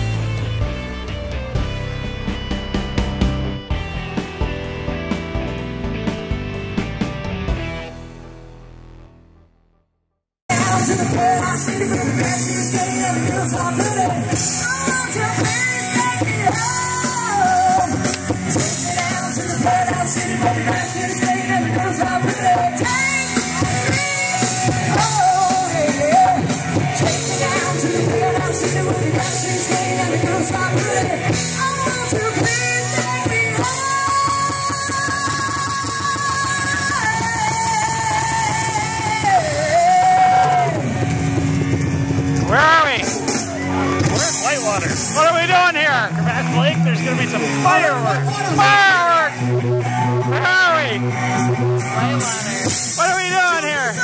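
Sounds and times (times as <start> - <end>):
drums: 0.0 - 9.1, 10.5 - 54.0
guitar: 0.0 - 9.6, 10.5 - 54.0
lead singer: 10.5 - 45.2.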